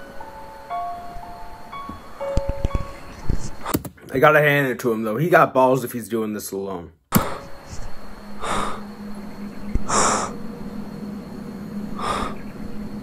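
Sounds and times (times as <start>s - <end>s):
faint steady hum: 0.0s - 13.0s
person breathing heavily: 7.1s - 9.0s, 9.8s - 10.5s, 11.9s - 12.9s.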